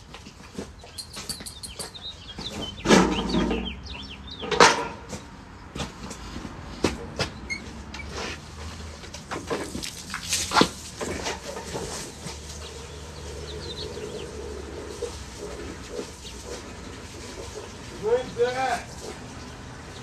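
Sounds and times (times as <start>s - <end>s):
metal wire gate rattling and clanking: 2.8s - 5.1s.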